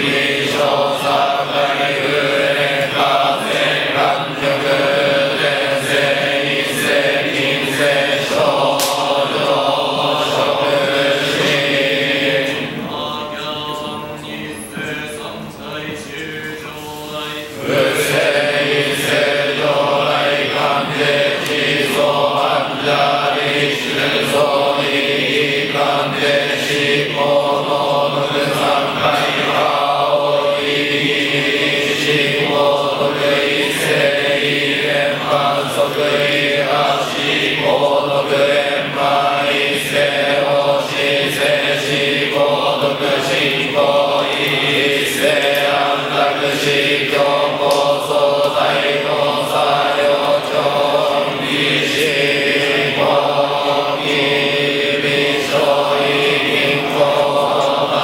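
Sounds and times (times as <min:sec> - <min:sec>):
priests chanting on one pitch: 0:00.0 - 0:58.0.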